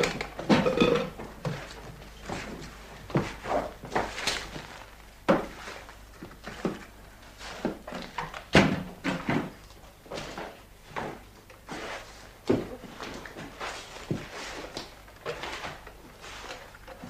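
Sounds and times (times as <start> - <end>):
broom sweeping a floor: 1.5 - 8.0, 10.1 - 17.0.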